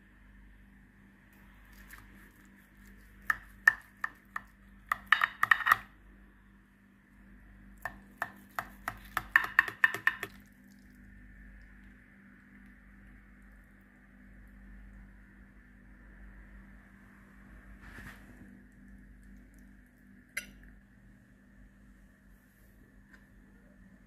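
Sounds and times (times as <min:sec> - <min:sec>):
knife tapping ceramic dish: 0:03.3 - 0:05.9, 0:07.8 - 0:10.4.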